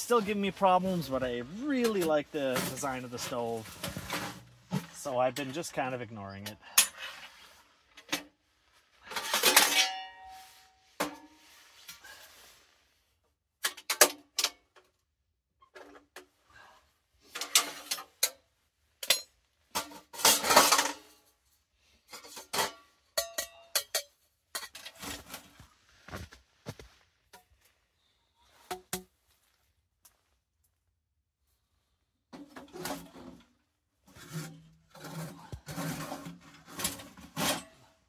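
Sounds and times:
metal stove parts clanking: 0:09.1 - 0:10.4, 0:17.3 - 0:18.4, 0:19.0 - 0:21.1, 0:22.1 - 0:25.2.

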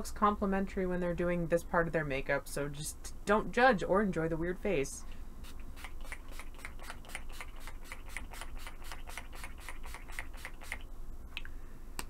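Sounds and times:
spray bottle spritzing: 0:05.4 - 0:10.8.

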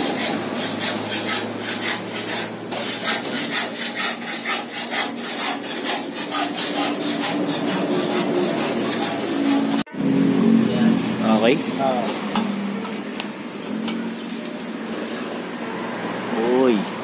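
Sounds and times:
hand tool rasping on pipe: 0:00.0 - 0:09.9.

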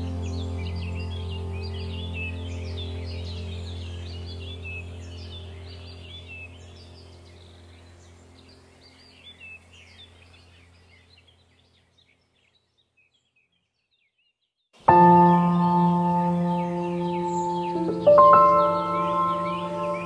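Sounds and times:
low held music chord: 0:00.0 - 0:09.8, 0:14.8 - 0:20.0
birds chirping: 0:00.0 - 0:20.0.

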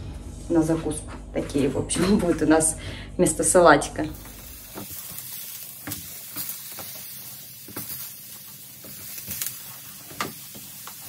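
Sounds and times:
eggplant sizzling in a pan: 0:04.0 - 0:11.0.

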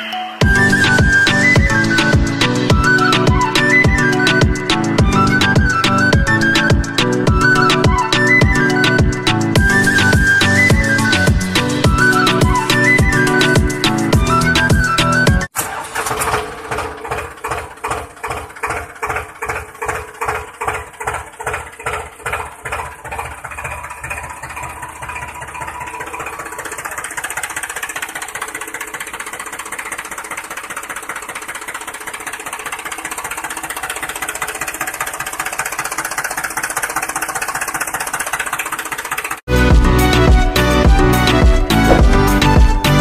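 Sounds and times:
toy tractor motor chugging: 0:15.6 - 0:39.5.

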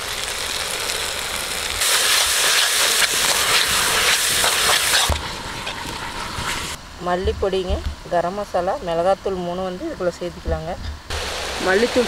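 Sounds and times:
masala sizzling in a pan: 0:00.0 - 0:06.8.

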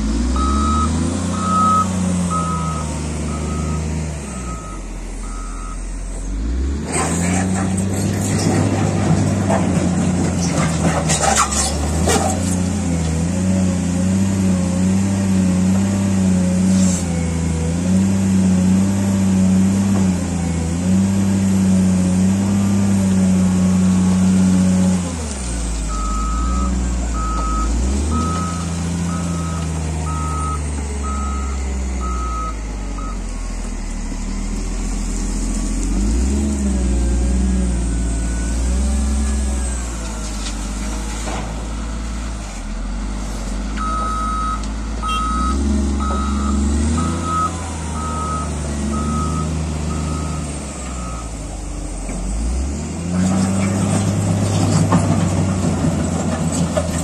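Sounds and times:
diesel engine running: 0:00.0 - 0:57.0
reversing alarm beeping: 0:00.3 - 0:06.0, 0:25.9 - 0:34.5, 0:43.8 - 0:51.4.

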